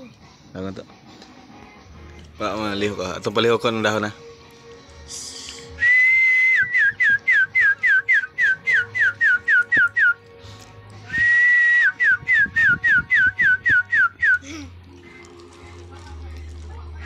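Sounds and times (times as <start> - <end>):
person whistling: 5.2 - 10.2, 11.0 - 14.5.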